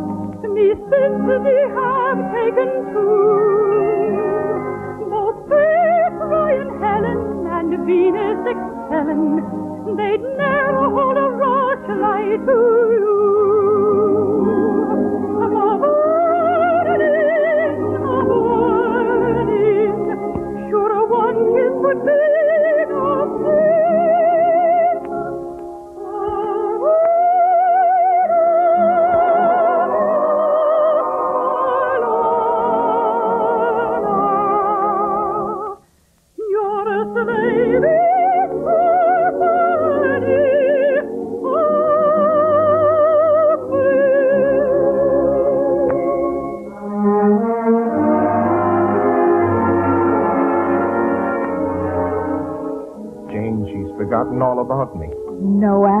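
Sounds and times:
soprano singing with vibrato: 0.0s - 25.4s, 26.0s - 35.8s, 36.4s - 46.5s
orchestral accompaniment: 38.5s - 56.0s.

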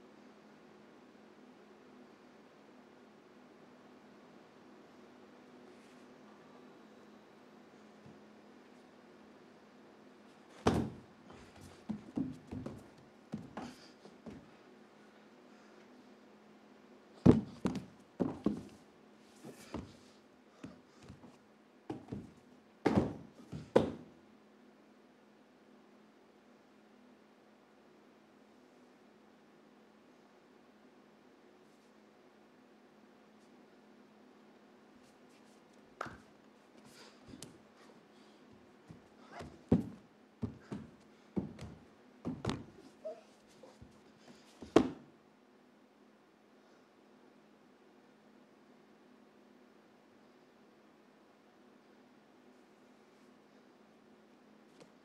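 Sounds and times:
faint steady hum: 0.0s - 55.0s
body thudding on wooden floor: 10.6s - 13.7s, 17.2s - 18.7s, 22.9s - 24.0s, 38.9s - 42.8s.

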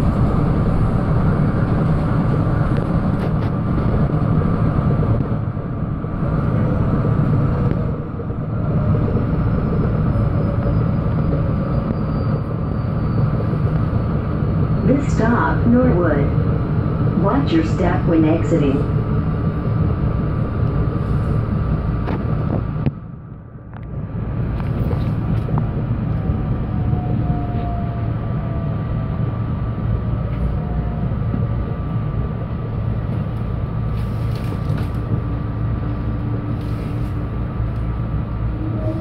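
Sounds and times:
faint train whine: 0.0s - 39.0s
train wheels rumbling on rail: 0.0s - 39.0s.

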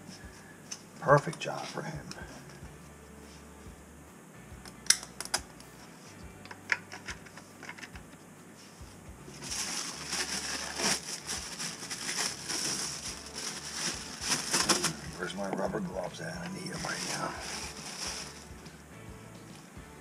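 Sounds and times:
plastic wrapper crinkling: 9.4s - 18.6s.

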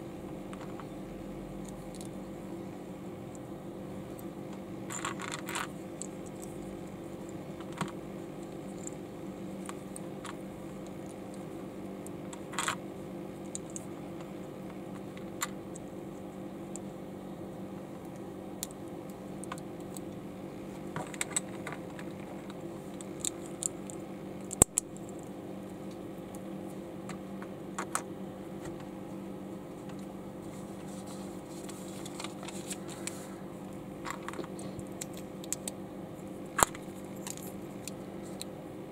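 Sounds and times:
steady low hum: 0.0s - 38.9s.

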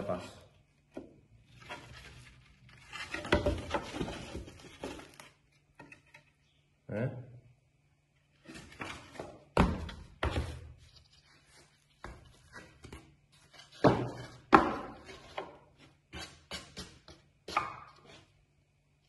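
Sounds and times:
wooden plates scraping: 1.0s - 6.4s
wooden plates knocking: 13.7s - 15.6s.

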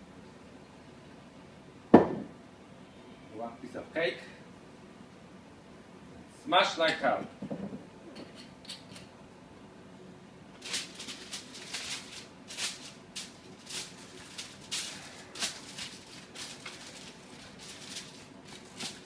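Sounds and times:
aluminium foil crinkling: 10.6s - 19.0s.

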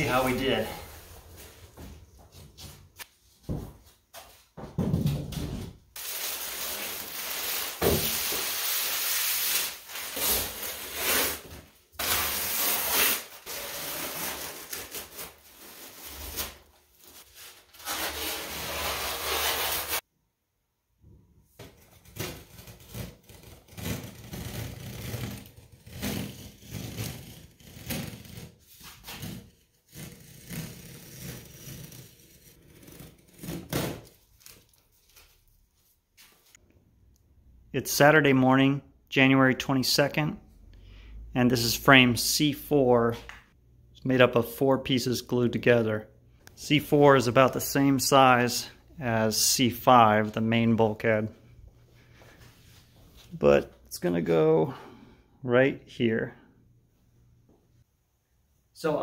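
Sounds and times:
plastic sheeting crinkling: 6.0s - 20.0s
peel ply tearing and scraping: 21.8s - 35.2s.

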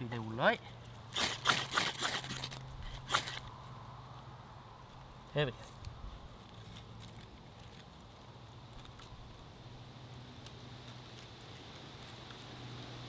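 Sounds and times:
fire crackling with small snaps: 3.4s - 13.0s.

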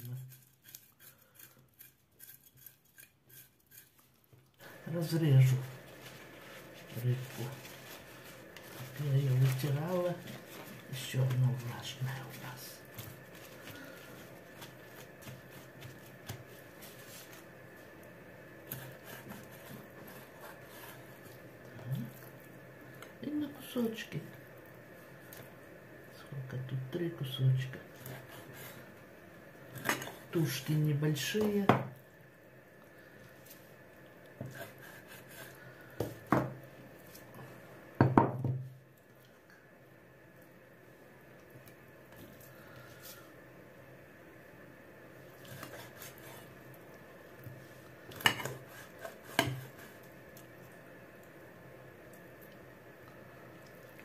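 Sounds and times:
knife cutting fish: 45.4s - 46.5s.

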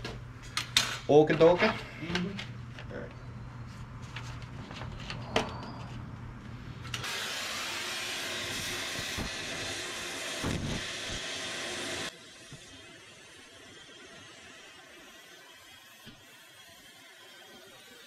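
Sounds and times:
cutting torch hissing: 7.0s - 18.0s.

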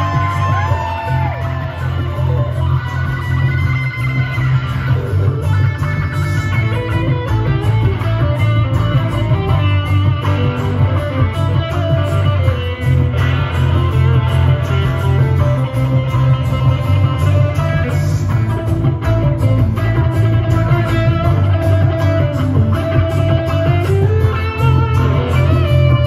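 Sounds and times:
amplified acoustic guitar: 0.0s - 26.0s
heavy bass line: 0.0s - 26.0s
steady beat: 0.0s - 26.0s.

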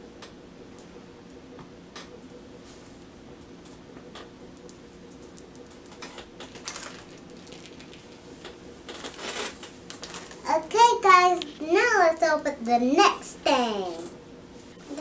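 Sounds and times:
plastic packaging clicks and rustles: 5.9s - 10.5s.

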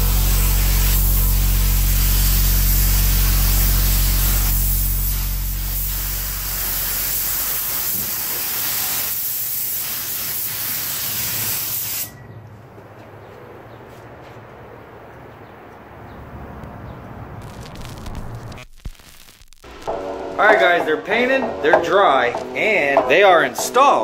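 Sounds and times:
low machine hum: 0.0s - 7.5s
paint spray gun hissing: 0.0s - 12.1s.

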